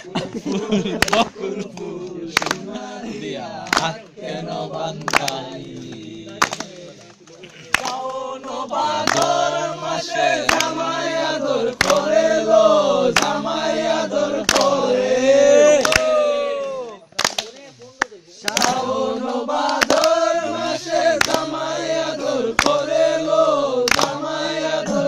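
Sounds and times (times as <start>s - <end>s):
men singing together: 0.0s - 7.0s, 7.7s - 16.3s, 18.4s - 25.0s
sharp hand claps: 1.0s - 2.7s, 3.6s - 8.3s, 9.0s - 9.6s, 10.4s - 10.8s, 11.8s - 12.1s, 13.1s - 13.4s, 14.4s - 14.8s, 15.8s - 20.2s, 21.2s - 21.6s, 22.5s - 22.9s, 23.8s - 24.3s.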